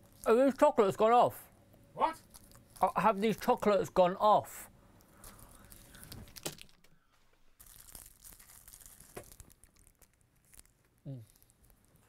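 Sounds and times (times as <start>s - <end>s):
wrapper tearing and crinkling: 2.2s - 3.5s, 5.2s - 6.9s, 7.6s - 12.0s.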